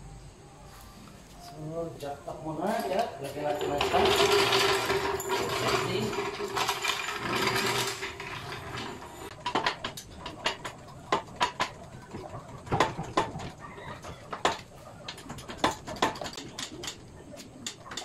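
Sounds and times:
sharp clicks and light knocks: 9.3 - 18.0.

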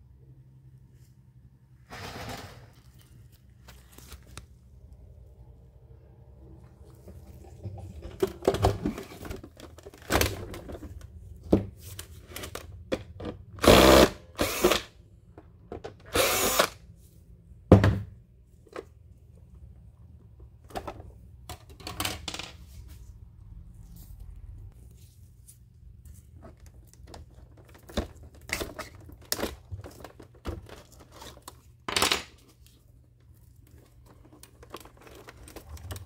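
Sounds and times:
cordless drill spinning: 13.6 - 14.9, 16.1 - 16.8.

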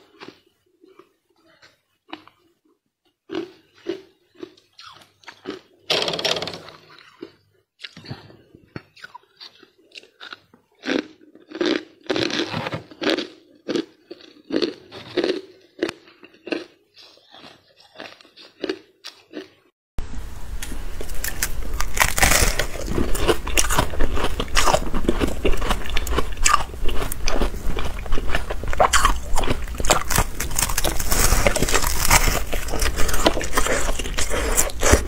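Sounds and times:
freezer frost scraped and crunched: 21.0 - 24.8, 29.4 - 35.0.

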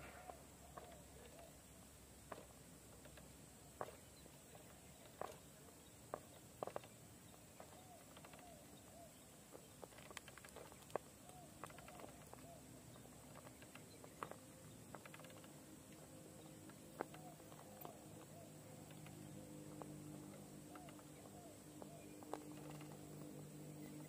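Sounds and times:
tyres clicking on rock: 2.2 - 7.0, 9.6 - 23.3.

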